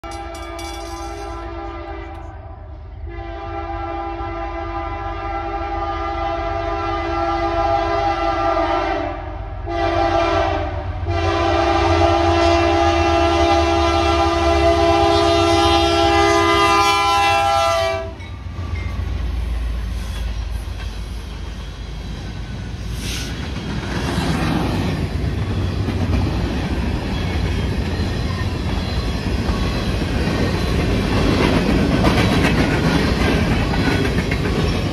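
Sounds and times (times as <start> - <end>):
train wheels clattering on rails: 0.0 - 1.6, 18.1 - 34.9
locomotive air horn: 1.2 - 18.2
locomotive rumbling past: 9.4 - 34.9.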